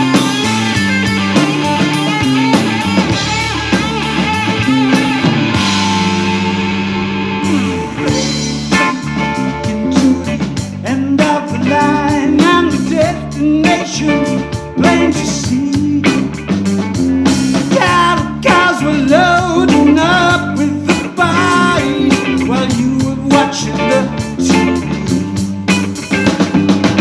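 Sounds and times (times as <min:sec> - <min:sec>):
electric guitar bending notes: 0:00.0 - 0:13.4
bass guitar: 0:00.0 - 0:27.0
drum kit steady beat: 0:00.0 - 0:27.0.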